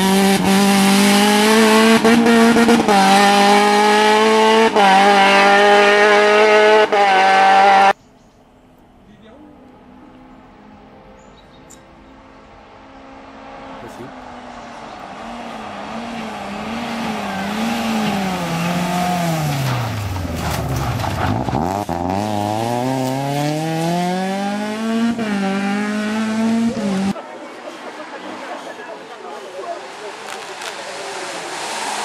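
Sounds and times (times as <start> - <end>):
rally car engine revving: 0.0 - 8.0, 12.1 - 27.2, 29.6 - 32.0.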